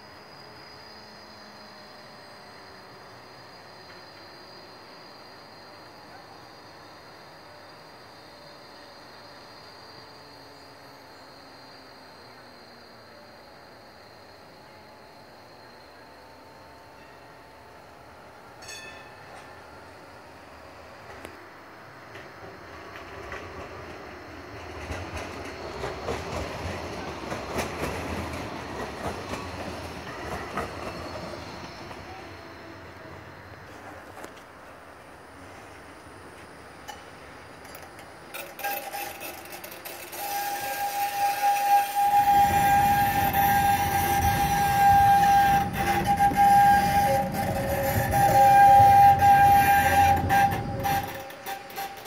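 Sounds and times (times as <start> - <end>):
tram rail rumble: 0.0 - 52.0
wheels clicking over rail joints: 36.8 - 52.0.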